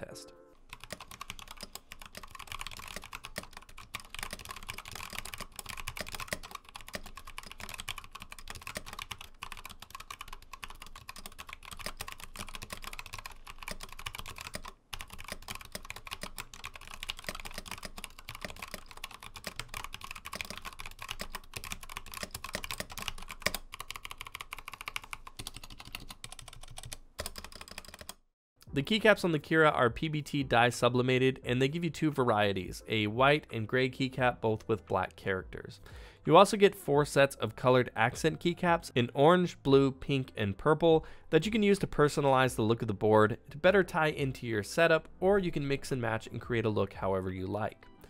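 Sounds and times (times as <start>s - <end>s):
mechanical keyboard typing: 0.7s - 28.2s.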